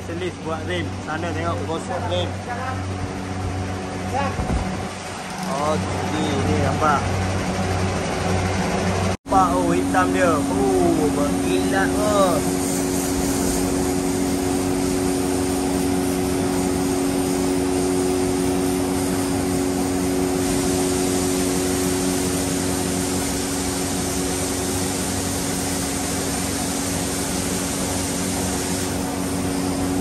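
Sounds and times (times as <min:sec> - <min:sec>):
machine hum: 0:00.0 - 0:30.0
spray gun hissing: 0:09.3 - 0:30.0.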